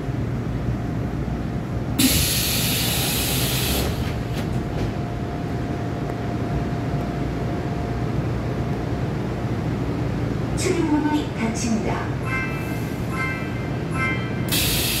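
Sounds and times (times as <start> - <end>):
subway car low rumble: 0.0 - 15.0
loud hiss: 2.0 - 4.0, 14.5 - 15.0.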